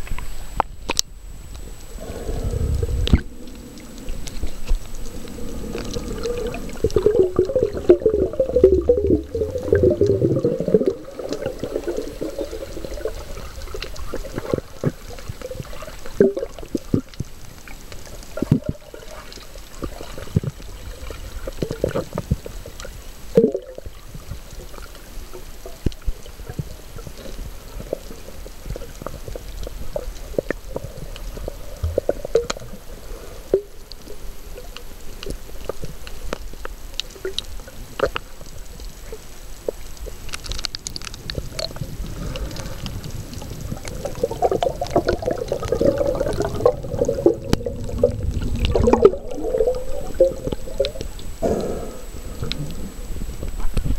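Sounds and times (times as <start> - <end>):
small clicks and pops: 0.0 - 1.7, 3.0 - 32.8, 33.5 - 51.3
low underwater rumble: 0.0 - 53.9
water swishing and gurgling underwater: 0.0 - 53.9
swirl of bubbles: 1.9 - 17.0, 42.4 - 51.2.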